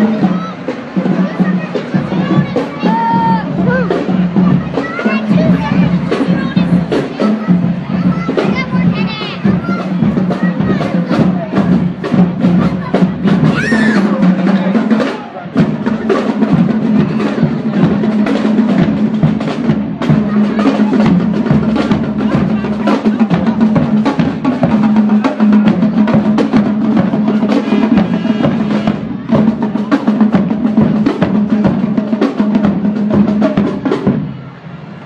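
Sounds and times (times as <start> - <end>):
marching band playing: 0.0 - 35.0
snare and tenor drums beating: 0.0 - 35.0.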